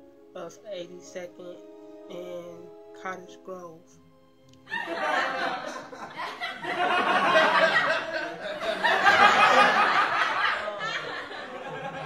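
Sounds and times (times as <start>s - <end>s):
loud laughter: 4.7s - 12.0s.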